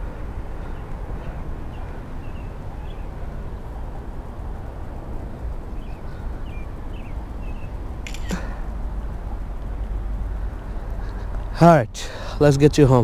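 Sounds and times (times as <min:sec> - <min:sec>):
low outdoor rumble: 0:00.0 - 0:13.0
bird chirps: 0:00.6 - 0:03.6, 0:05.7 - 0:08.7.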